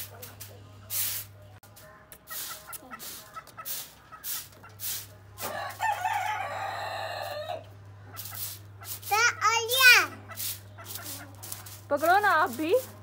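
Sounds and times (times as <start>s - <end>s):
chickens clucking: 2.2s - 12.4s
rooster crowing: 5.4s - 7.7s.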